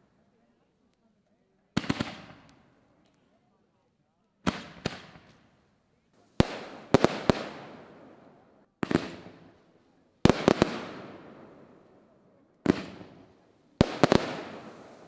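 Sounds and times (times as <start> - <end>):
fireworks bangs echoing: 1.8 - 2.5, 4.4 - 5.5, 6.4 - 9.6, 10.2 - 11.8, 12.6 - 15.0.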